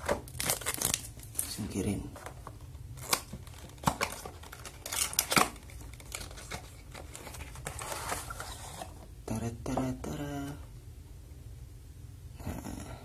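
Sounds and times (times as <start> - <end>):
cardboard and plastic scraping: 0.0 - 9.1.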